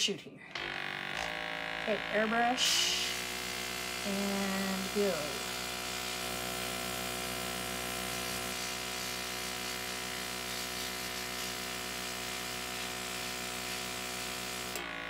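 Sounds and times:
compressor buzzing hum: 0.6 - 15.0
airbrush spraying hiss: 8.1 - 13.0.

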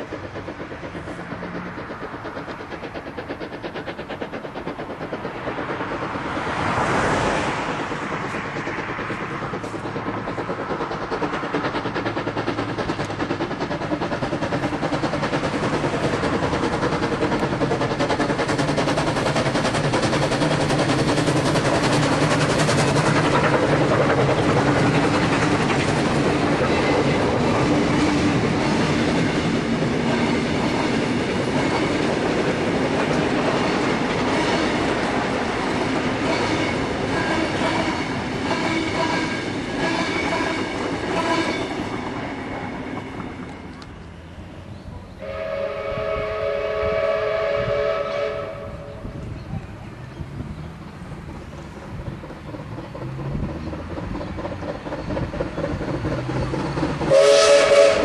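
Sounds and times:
steam locomotives chuffing: 0.0 - 58.0
train wheels clicking over rail joints: 0.0 - 58.0.

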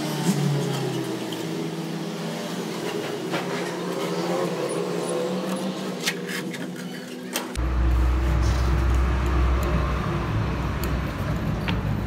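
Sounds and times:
motor hum: 7.6 - 12.0.

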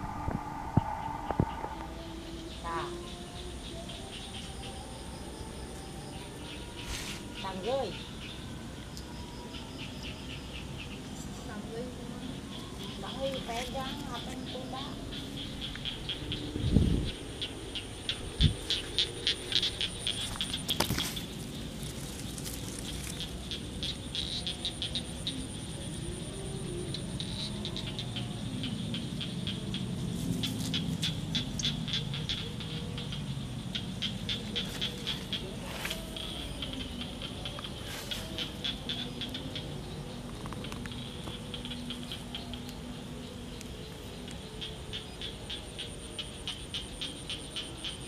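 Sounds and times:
wind rumble: 0.0 - 3.9, 11.4 - 24.5
rustle through grass: 18.5 - 23.6, 30.1 - 31.7, 34.4 - 36.4, 37.6 - 38.8.

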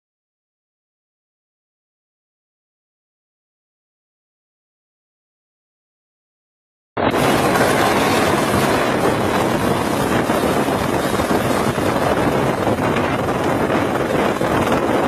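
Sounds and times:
helicopter rotor and turbine: 7.0 - 15.0
wind buffeting microphone: 7.0 - 15.0.

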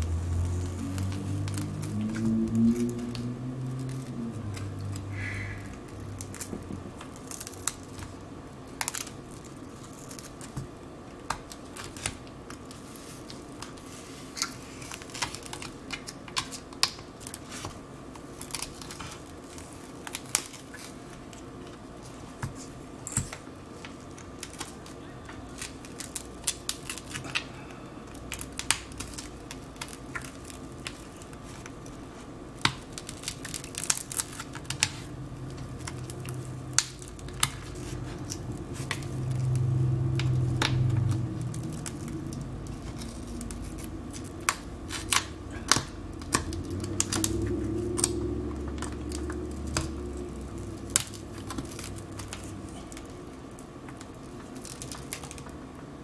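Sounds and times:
cracked glass snapping and scraping: 5.9 - 8.2, 8.8 - 10.6, 18.4 - 21.0, 25.5 - 27.5, 28.1 - 31.8, 32.6 - 53.1, 53.8 - 55.5.

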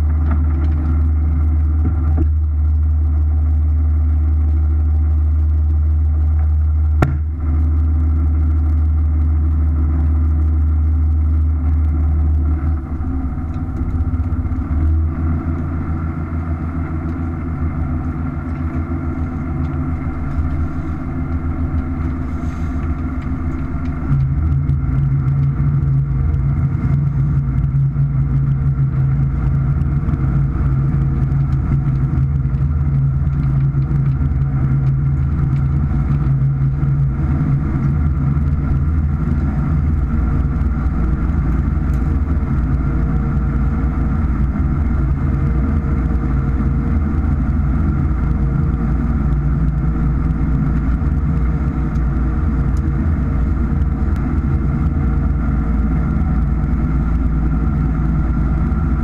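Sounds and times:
boat engine droning: 0.0 - 59.0.

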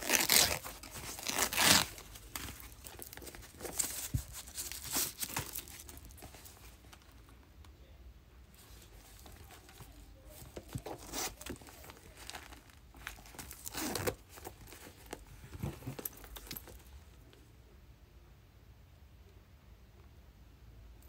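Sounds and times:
handling small leather goods: 0.0 - 7.7, 8.4 - 17.5.

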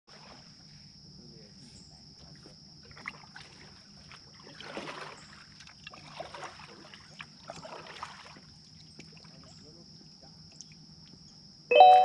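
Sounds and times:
paddle splashing in water: 2.2 - 9.6
water dripping from paddle: 3.0 - 9.6, 10.5 - 11.2.

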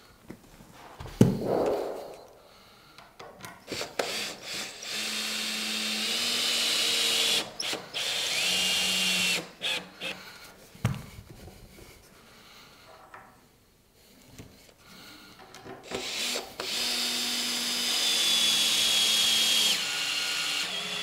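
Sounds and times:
sharp knock: 1.0 - 2.3
cordless drill driving screws: 3.7 - 10.2, 15.8 - 21.0.

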